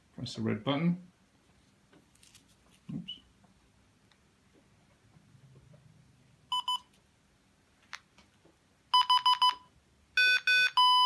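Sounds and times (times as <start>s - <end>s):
device beeping: 6.5s - 6.9s, 8.9s - 11.0s.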